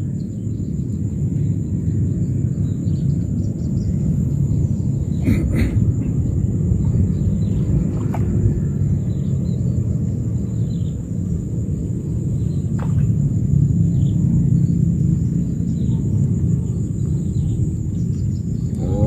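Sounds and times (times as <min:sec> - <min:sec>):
wind buffeting microphone: 0:00.0 - 0:19.0
high-pitched whine: 0:10.4 - 0:19.0.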